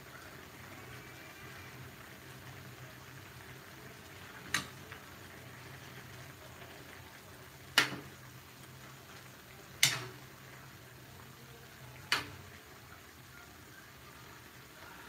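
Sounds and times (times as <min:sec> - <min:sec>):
curry bubbling: 0:00.0 - 0:15.0.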